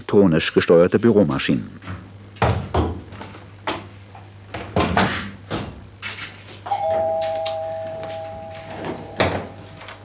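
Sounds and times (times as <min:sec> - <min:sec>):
two-tone door chime: 0:06.7 - 0:10.0.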